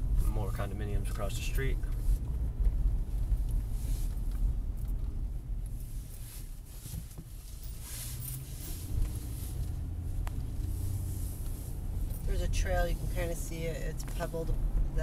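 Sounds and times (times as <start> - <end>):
car engine and road rumble: 0.0 - 15.0
tyre and wind hiss: 5.8 - 15.0.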